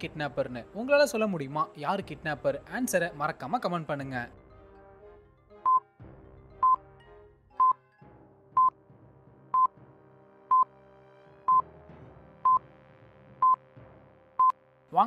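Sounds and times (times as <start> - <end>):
faint background music: 0.0 - 15.0
short electronic beeps: 5.7 - 5.9.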